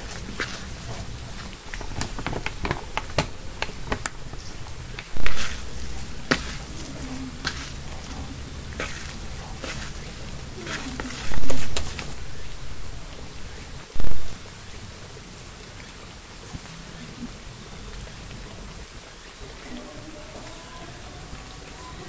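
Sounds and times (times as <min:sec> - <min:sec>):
hands kneading wet dough: 0:00.0 - 0:14.3
loud squelches: 0:00.0 - 0:14.6.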